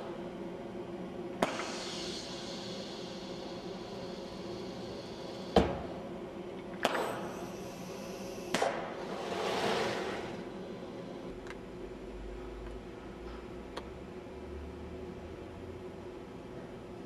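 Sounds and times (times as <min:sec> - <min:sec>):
steady machine hum: 0:00.0 - 0:17.0
machinery hiss: 0:01.4 - 0:06.0, 0:07.0 - 0:10.5.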